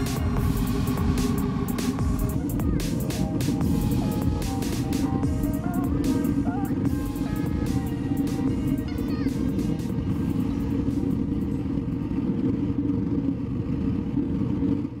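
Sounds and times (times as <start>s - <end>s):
burner flame roaring: 0.0s - 7.4s, 9.4s - 15.0s
background music: 0.0s - 11.5s
air blower humming: 0.0s - 12.6s.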